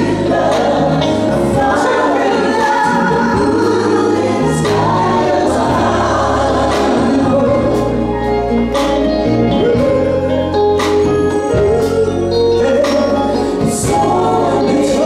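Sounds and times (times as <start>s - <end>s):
bass notes: 0.0s - 15.0s
gospel band playing: 0.0s - 15.0s
woman singing: 1.4s - 5.4s.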